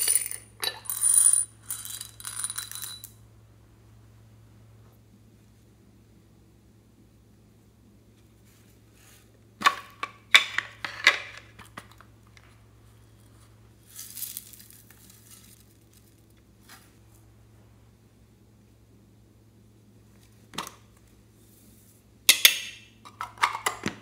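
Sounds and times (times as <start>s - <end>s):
sprinkles pouring into glass dish: 13.8s - 16.2s.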